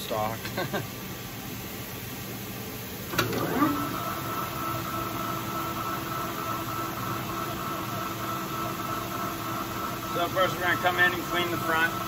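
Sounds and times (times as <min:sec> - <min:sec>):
lathe motor and gear hum: 0:03.1 - 0:12.0.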